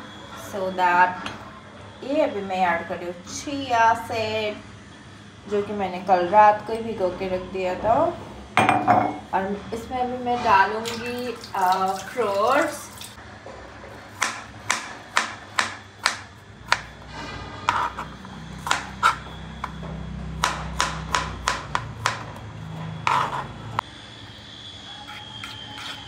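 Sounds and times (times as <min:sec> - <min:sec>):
knife chopping on plastic board: 0:14.2 - 0:16.9, 0:20.4 - 0:22.3.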